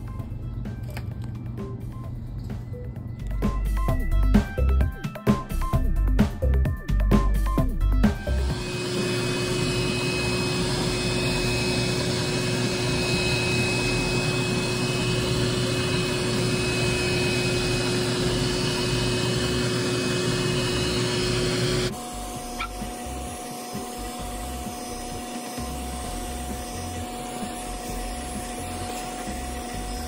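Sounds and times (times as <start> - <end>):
vacuum cleaner running: 8.1 - 30.0.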